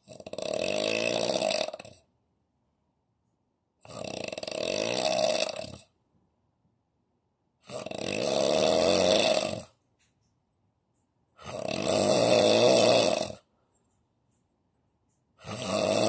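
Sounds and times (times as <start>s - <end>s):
man snoring heavily: 0.0s - 2.0s, 3.8s - 5.9s, 7.6s - 9.7s, 11.4s - 13.5s, 15.4s - 16.0s.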